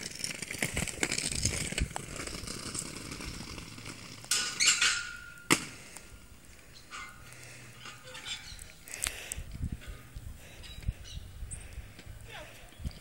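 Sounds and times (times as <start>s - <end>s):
roller-skate wheels on paving stones: 0.0s - 13.0s.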